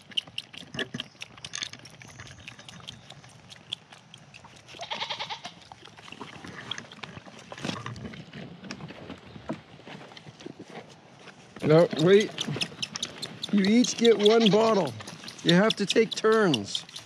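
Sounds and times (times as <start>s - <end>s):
goat kids suckling bottle: 0.0s - 8.3s, 11.6s - 17.0s
goat kid bleating: 4.7s - 5.6s, 12.0s - 17.0s.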